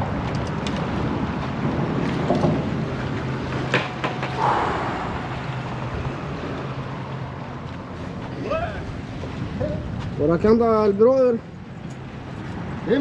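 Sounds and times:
low engine hum: 0:00.0 - 0:10.3
wind on microphone: 0:04.2 - 0:07.4, 0:08.4 - 0:10.5.

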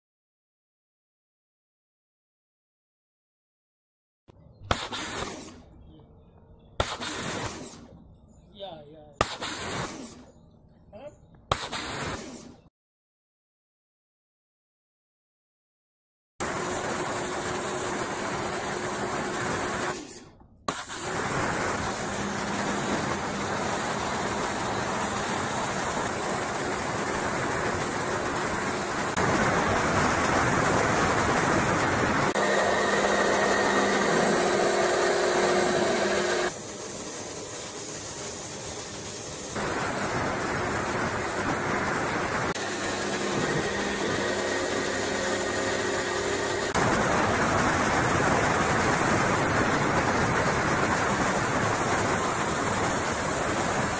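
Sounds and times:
water jet hissing on pavement: 0:06.8 - 0:07.8, 0:20.7 - 0:32.4, 0:36.4 - 0:53.9
pressure washer motor humming: 0:16.4 - 0:20.1, 0:20.7 - 0:53.9.

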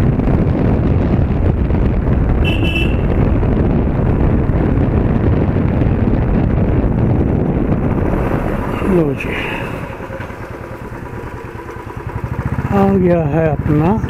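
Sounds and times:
wind on microphone: 0:00.0 - 0:12.6
motorcycle engine running: 0:00.0 - 0:14.0
short horn beep: 0:02.4 - 0:03.1.

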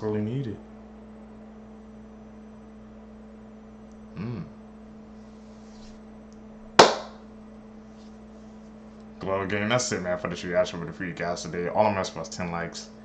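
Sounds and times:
low electrical hum: 0:00.0 - 0:13.0
man's voice murmuring: 0:04.2 - 0:04.5.

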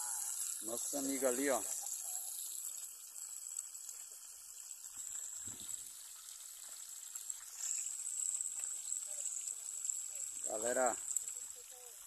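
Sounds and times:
steady high-pitched hiss: 0:00.0 - 0:02.8.

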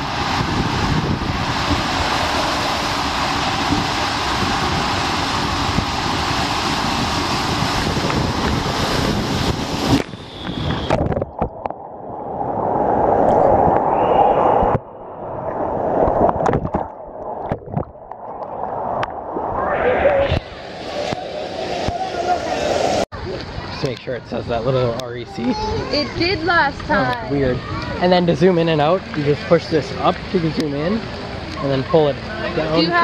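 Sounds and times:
water rushing in slide tube: 0:00.0 - 0:23.8
muffled water sloshing: 0:14.6 - 0:22.1
knocks and splashes: 0:16.0 - 0:19.6.

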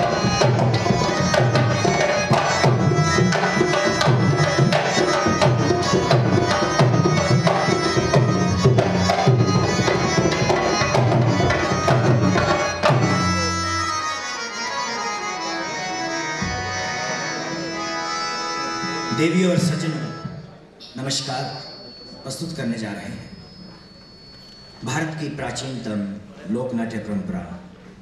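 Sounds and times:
hand drums beating: 0:00.0 - 0:13.9
harmonium: 0:00.0 - 0:23.5.

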